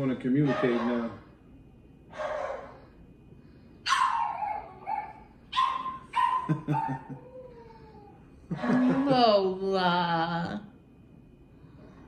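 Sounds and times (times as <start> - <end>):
dogs yelping and whining: 0.4 - 1.3, 2.1 - 2.9, 3.8 - 9.0.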